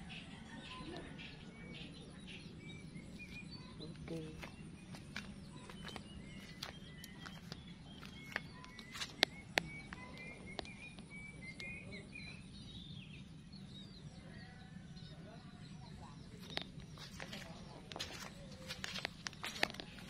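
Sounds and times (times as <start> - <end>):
small birds chirping: 0.0 - 20.0
steady low hum: 0.0 - 20.0
clicks of steps on roof tiles: 4.2 - 9.3, 16.4 - 20.0.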